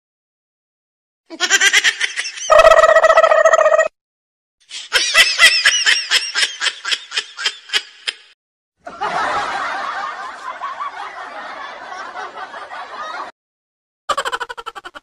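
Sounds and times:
high-pitched snickering laugh: 0:01.3 - 0:03.3, 0:14.1 - 0:15.0.

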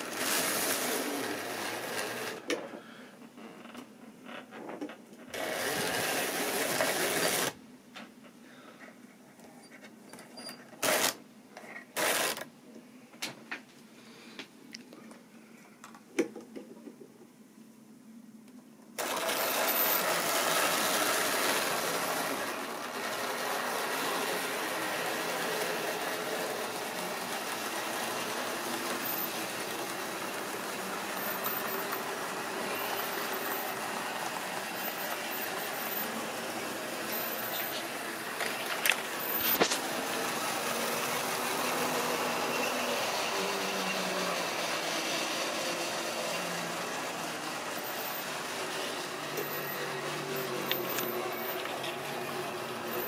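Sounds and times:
model train motors whirring: 0:10.8 - 0:11.2, 0:19.0 - 0:53.0.

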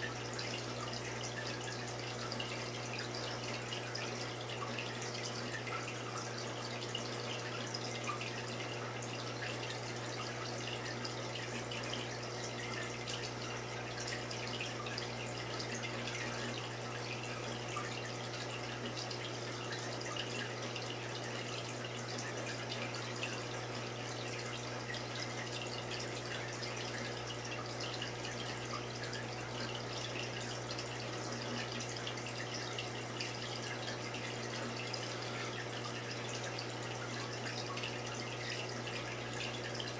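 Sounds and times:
low pump hum: 0:00.0 - 0:39.9
water trickling and dripping: 0:00.0 - 0:39.9.

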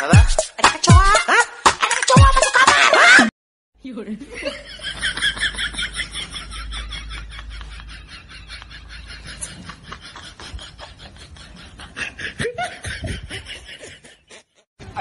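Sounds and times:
snickering laughter: 0:04.5 - 0:14.6.

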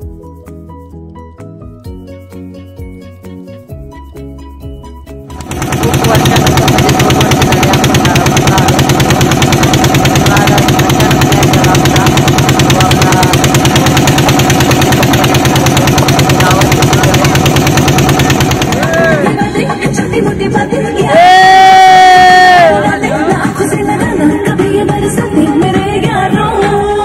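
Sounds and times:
boat engine running: 0:05.3 - 0:20.6.

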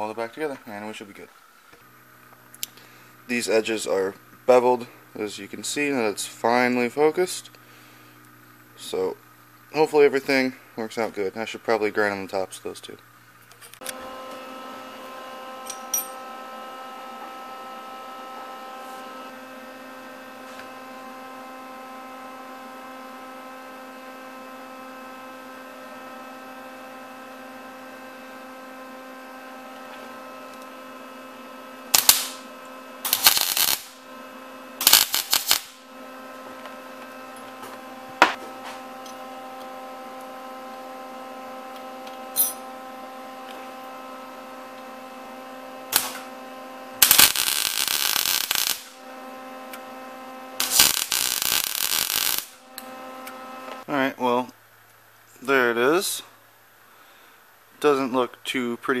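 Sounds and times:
steady electrical hum: 0:00.0 - 0:59.0
arc welding bursts: 0:31.8 - 0:36.4, 0:45.8 - 0:49.0, 0:50.4 - 0:53.6.

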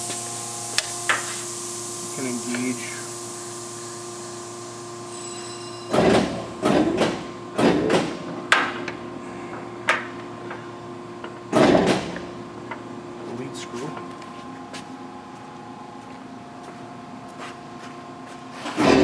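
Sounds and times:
lathe running with steady hum: 0:00.0 - 0:19.0
control switch clunks and whirs: 0:05.9 - 0:10.6.

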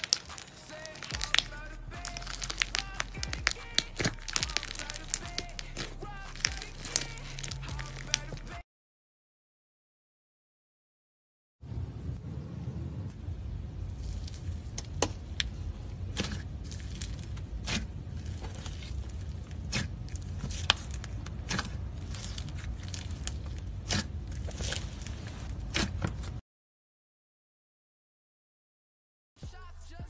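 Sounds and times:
slime crackling and popping: 0:00.0 - 0:08.6, 0:14.0 - 0:25.9
steady low hum: 0:00.4 - 0:08.6, 0:11.6 - 0:26.4.

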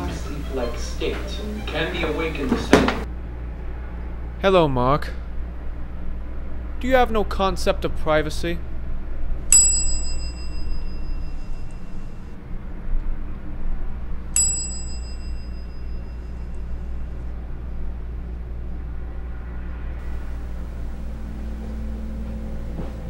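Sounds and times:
steady low hum: 0:00.0 - 0:23.0
small bell ding: 0:09.5 - 0:12.2, 0:14.4 - 0:16.8.

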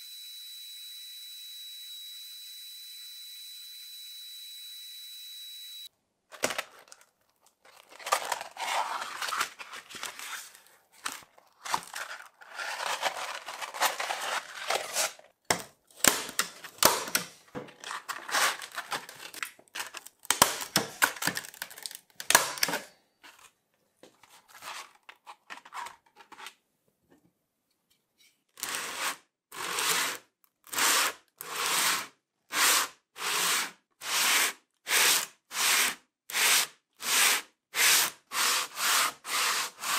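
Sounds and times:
scraping and rubbing on wood: 0:07.8 - 0:15.3, 0:16.1 - 0:20.0, 0:37.8 - 0:39.9.

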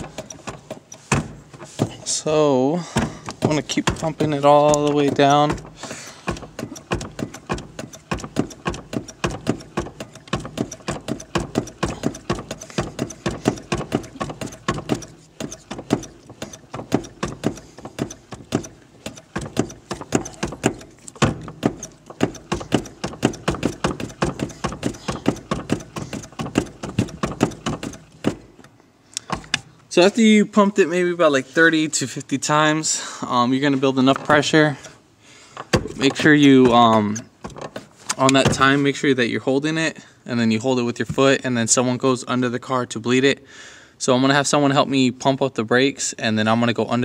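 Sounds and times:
clutch pedal clacking: 0:00.0 - 0:02.2, 0:02.9 - 0:29.8, 0:35.6 - 0:38.8.

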